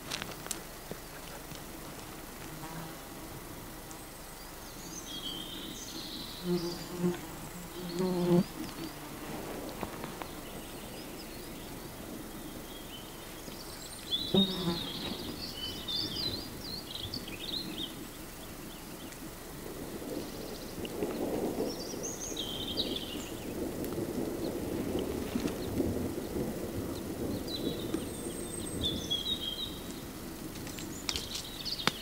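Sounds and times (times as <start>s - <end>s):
insect buzzing past: 1.8s - 10.3s, 14.2s - 15.9s
birds singing: 3.9s - 19.2s, 19.8s - 23.7s, 24.4s - 32.0s.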